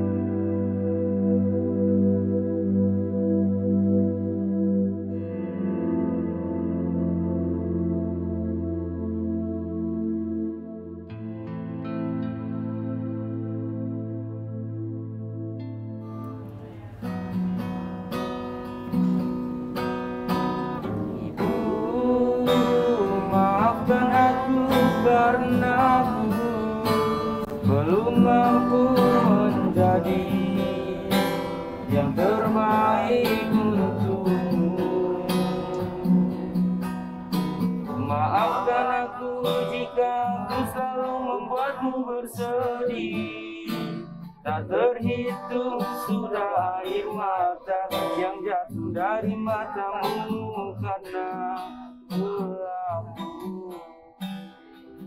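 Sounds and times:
classical guitar strummed and plucked: 0:05.0 - 0:14.9, 0:15.5 - 0:55.0
person singing: 0:20.3 - 0:54.1.

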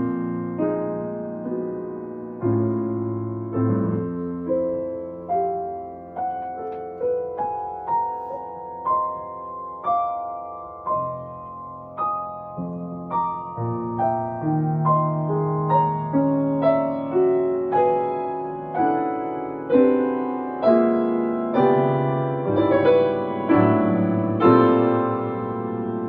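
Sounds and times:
grand piano playing: 0:00.0 - 0:26.0.

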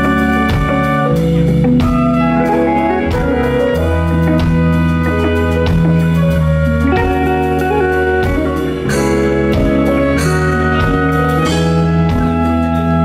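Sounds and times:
held chords: 0:00.0 - 0:13.0
steady bass line: 0:00.0 - 0:13.0.

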